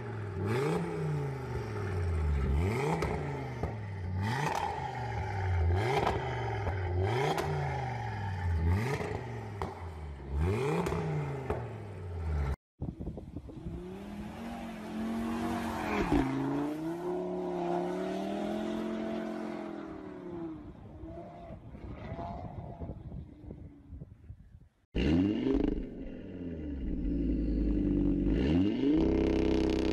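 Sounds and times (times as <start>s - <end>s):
car engine at high revs: 0.0s - 12.6s, 25.0s - 29.9s
car engine revving: 0.0s - 12.6s.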